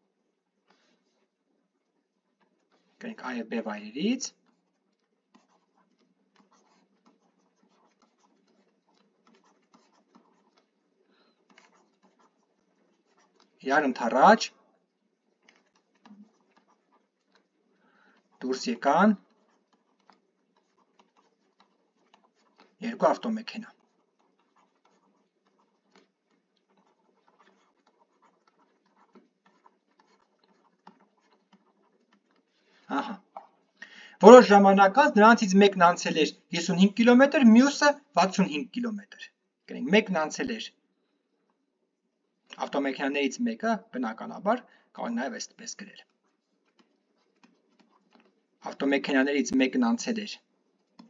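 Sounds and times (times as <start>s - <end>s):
stylus scratching on tablet: 0.0s - 51.0s.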